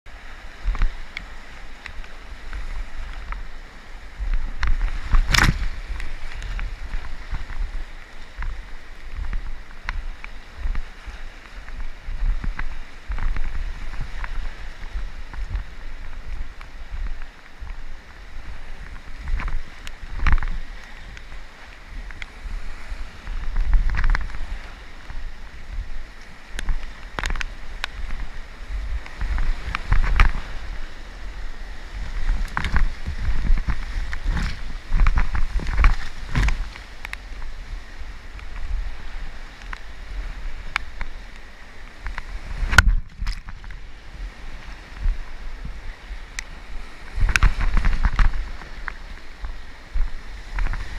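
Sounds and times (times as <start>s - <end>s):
water rushing: 0.1s - 50.9s
wind rumbling on microphone: 0.1s - 50.9s
paddle splashes and knocks: 4.2s - 30.7s, 32.0s - 37.6s.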